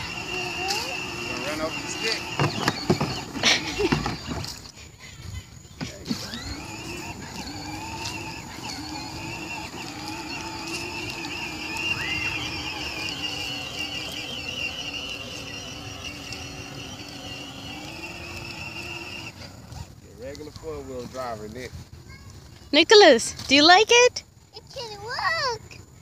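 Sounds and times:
electric motor and gearbox whine: 0:00.0 - 0:04.8, 0:05.7 - 0:21.7.

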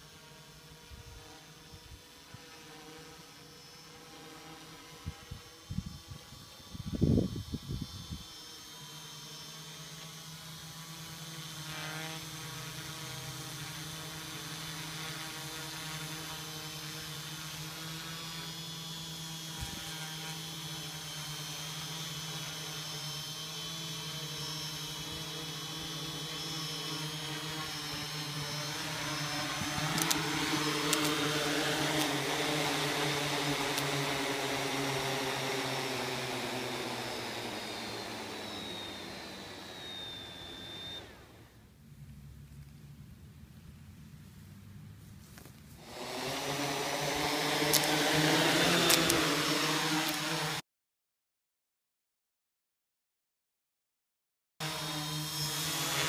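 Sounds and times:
quadcopter motors whirring: 0:00.0 - 0:43.1, 0:44.0 - 0:50.6, 0:54.6 - 0:56.0
sharp clicks: 0:29.7 - 0:31.2, 0:48.8 - 0:49.3.

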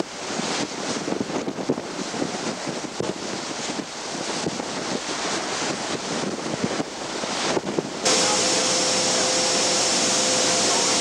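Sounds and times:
sea rushing against ship hull: 0:00.0 - 0:11.0
wind buffeting microphone: 0:00.0 - 0:11.0
faint steady whine: 0:08.1 - 0:11.0
machinery hum: 0:08.1 - 0:11.0.

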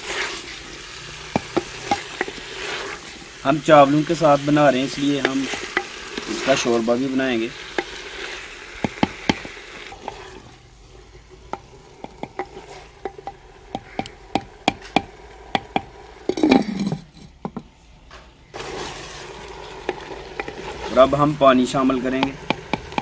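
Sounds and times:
faint frying sizzle: 0:00.0 - 0:17.0, 0:18.5 - 0:23.0
wooden ladle scraping clay pot: 0:00.0 - 0:17.8, 0:18.5 - 0:23.0
clay lid scraping onto pot: 0:01.2 - 0:06.8, 0:07.5 - 0:17.7, 0:18.6 - 0:21.1.

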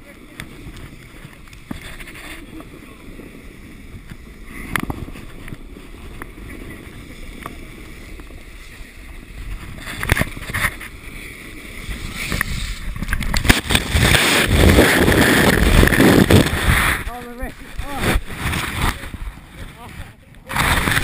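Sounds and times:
sledge scraping over snow: 0:00.0 - 0:21.0
body dragged through snow: 0:04.4 - 0:21.0.

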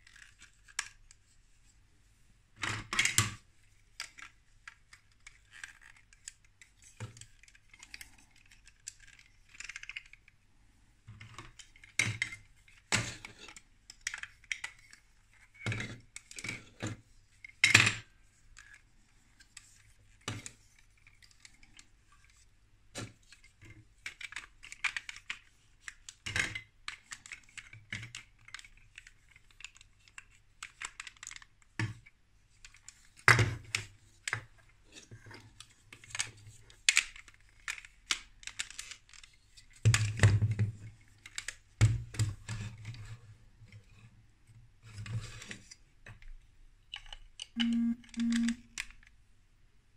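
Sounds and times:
plastic bricks clicking: 0:36.9 - 0:39.3.

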